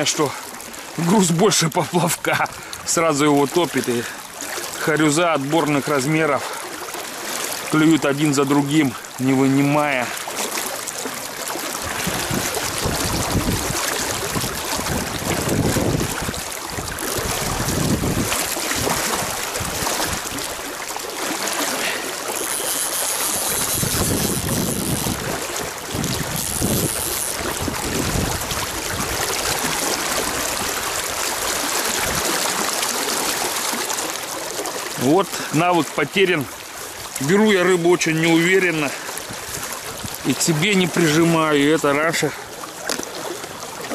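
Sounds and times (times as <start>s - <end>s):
river water rushing: 0.0s - 43.9s
wind buffeting microphone: 11.8s - 20.7s, 23.3s - 31.2s, 31.9s - 32.4s, 39.2s - 40.4s.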